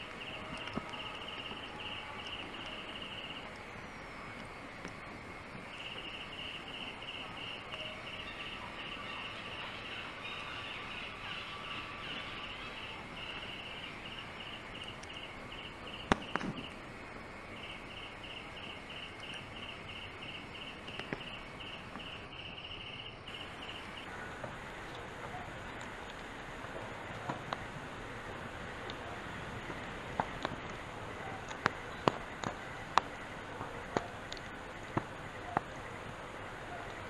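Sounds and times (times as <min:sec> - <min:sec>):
insect chirping in pulses: 0:00.0 - 0:37.0.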